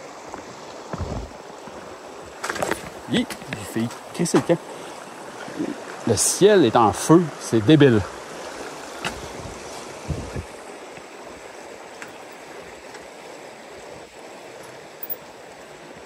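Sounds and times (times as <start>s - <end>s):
river water rushing: 0.0s - 16.0s
footsteps on metal bridge: 0.3s - 1.9s.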